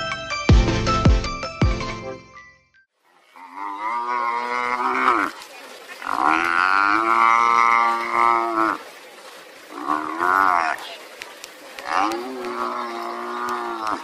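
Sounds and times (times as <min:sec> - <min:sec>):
buffalo bellowing: 0:03.4 - 0:05.3, 0:06.0 - 0:08.8, 0:09.7 - 0:10.9, 0:11.8 - 0:14.0.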